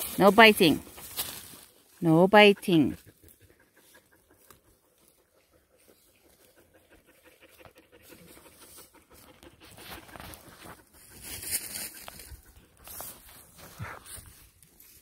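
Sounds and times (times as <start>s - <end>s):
dog panting: 2.4s - 11.2s.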